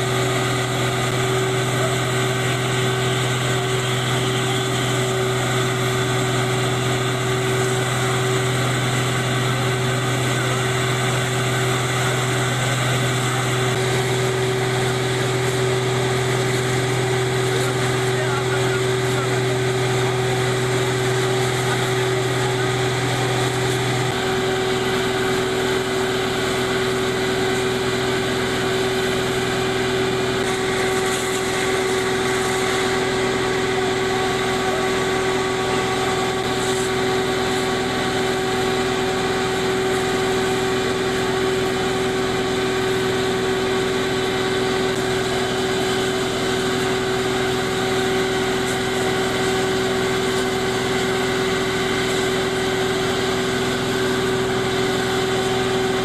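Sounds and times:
engine humming steadily: 0.0s - 56.0s.

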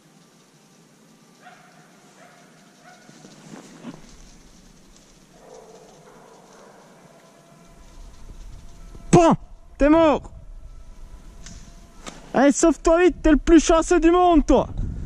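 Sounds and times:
distant dogs barking: 1.4s - 9.8s.

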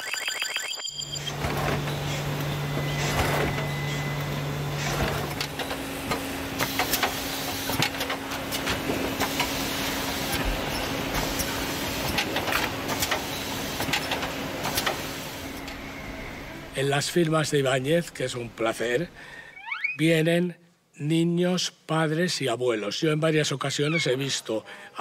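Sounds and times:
printing machinery humming: 0.2s - 19.4s
machinery clicks and clatter: 1.2s - 15.8s.

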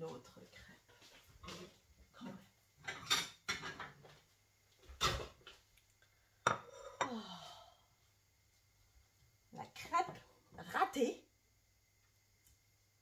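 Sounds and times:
utensils clattering against a pan: 2.8s - 4.0s.

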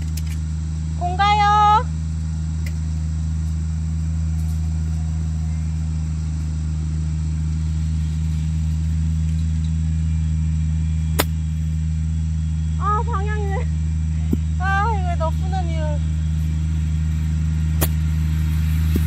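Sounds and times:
low engine hum: 0.0s - 19.0s
golf club striking ball: 11.1s - 11.6s, 17.8s - 18.2s.

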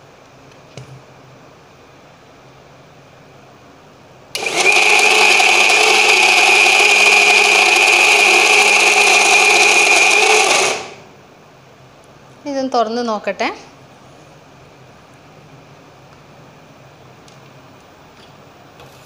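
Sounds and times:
mixer grinder whining: 4.4s - 11.1s.

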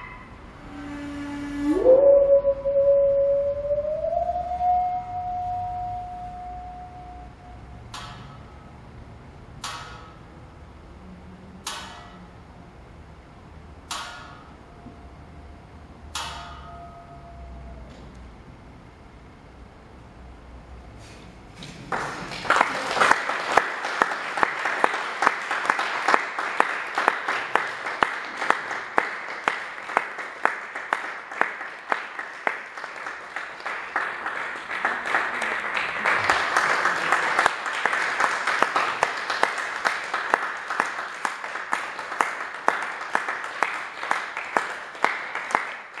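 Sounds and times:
sharp individual claps: 9.5s - 10.3s, 13.9s - 14.6s, 21.6s - 46.0s
audience applauding: 21.7s - 46.0s.

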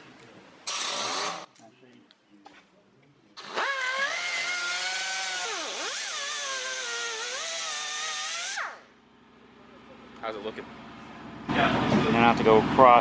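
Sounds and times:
pneumatic cutoff tool whining: 0.6s - 1.5s, 3.4s - 8.9s.

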